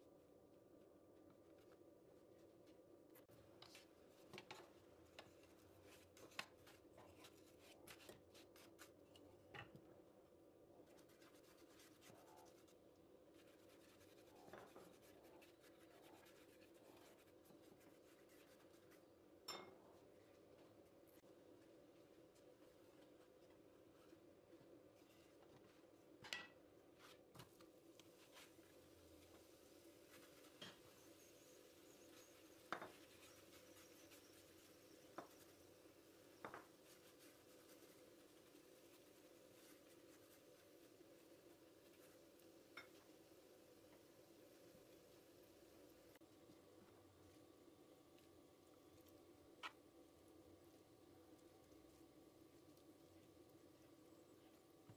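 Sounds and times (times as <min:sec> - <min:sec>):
faint steady hum: 0:00.0 - 0:54.9
pastry brush spreading oil in pan: 0:10.9 - 0:19.1, 0:27.0 - 0:46.2
brush scraping a pan: 0:30.0 - 0:40.9.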